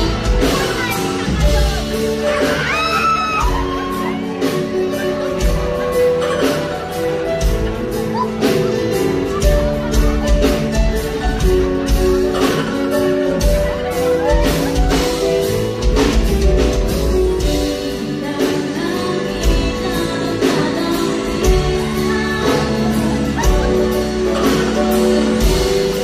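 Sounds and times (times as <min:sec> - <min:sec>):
woman singing: 0:17.4 - 0:26.0.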